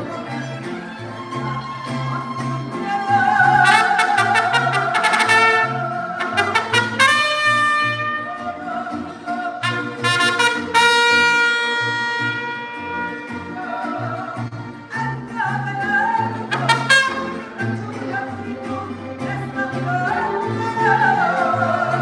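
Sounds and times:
brass horns playing held notes: 3.6s - 8.6s, 9.6s - 13.5s, 16.5s - 17.5s.

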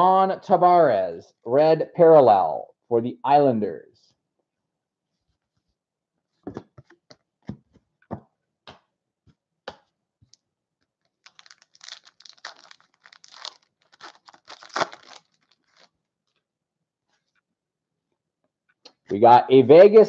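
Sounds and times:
foil wrapper tearing and crinkling: 11.1s - 16.0s.

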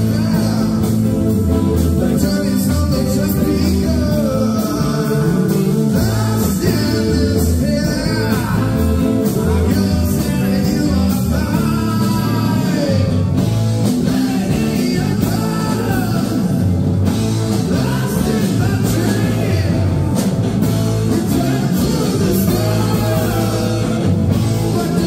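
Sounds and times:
person singing: 0.0s - 16.7s, 17.4s - 20.3s, 21.0s - 25.0s
drums: 0.0s - 25.0s
electric guitars: 0.0s - 25.0s.

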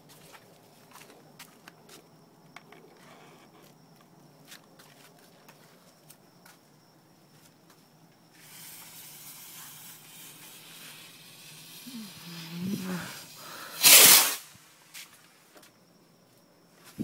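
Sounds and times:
firework fuse hissing: 8.3s - 15.2s
firework burst: 8.4s - 14.6s.

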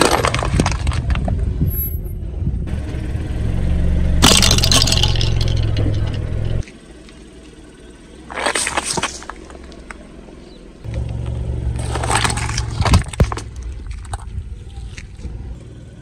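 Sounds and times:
crackling crunch under tyre: 0.0s - 1.8s, 8.2s - 15.6s
car engine running low: 0.3s - 16.0s.

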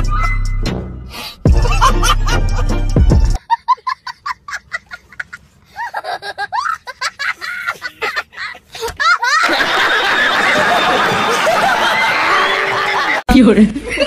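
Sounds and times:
women shrieking and laughing: 3.4s - 13.2s.

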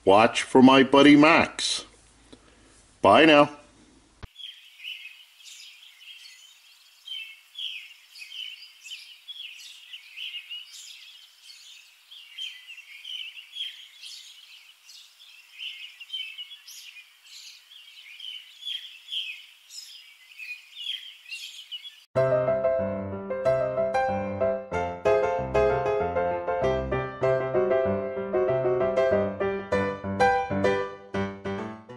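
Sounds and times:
birds chirping and singing: 4.3s - 22.1s.

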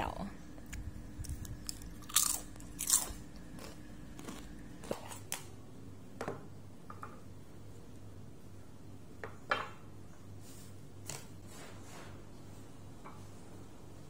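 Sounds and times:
potato chips crunching: 1.2s - 5.4s.

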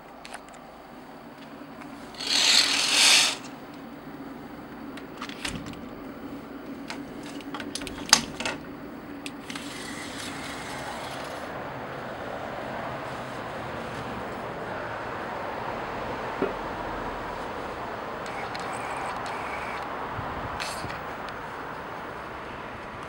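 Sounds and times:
steady low hum: 0.0s - 22.9s
curtain rustling: 1.9s - 3.6s, 9.4s - 11.6s
door clicks and knocks: 5.2s - 6.0s, 6.9s - 8.6s.

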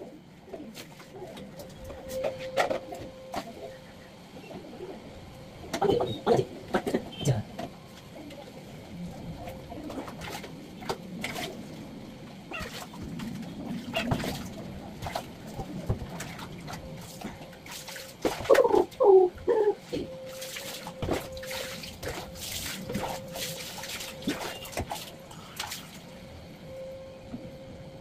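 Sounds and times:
water splashing in a basin: 20.2s - 26.1s.

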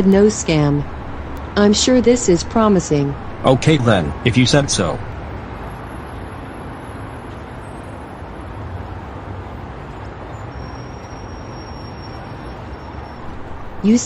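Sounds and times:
low rumble: 0.0s - 5.3s.

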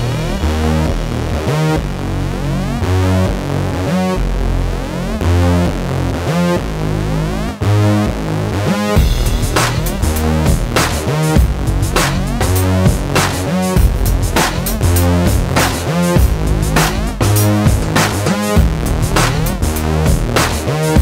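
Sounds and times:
drums: 0.0s - 2.0s, 8.9s - 21.0s
electronic synthesizer music: 0.0s - 21.0s.

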